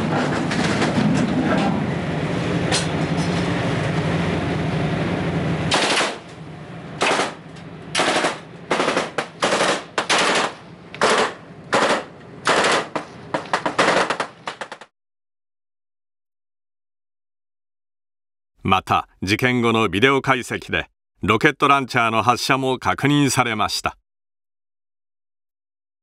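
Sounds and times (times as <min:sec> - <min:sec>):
steady noise with low hum: 0:00.0 - 0:13.5.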